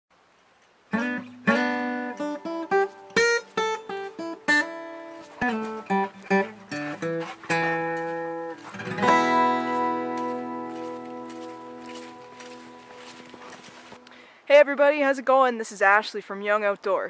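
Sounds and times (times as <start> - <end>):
acoustic guitar picking: 0.9 - 14.0
guitar chord ringing: 8.6 - 13.2.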